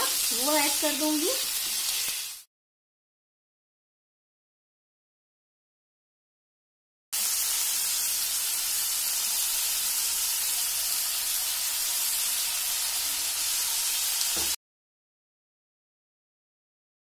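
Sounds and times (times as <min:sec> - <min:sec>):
vegetables sizzling in oil: 0:00.0 - 0:02.5, 0:07.2 - 0:14.6.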